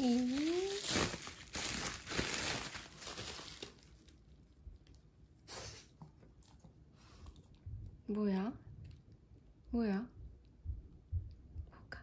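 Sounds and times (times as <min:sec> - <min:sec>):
bubble wrap crinkling: 0:00.0 - 0:05.0.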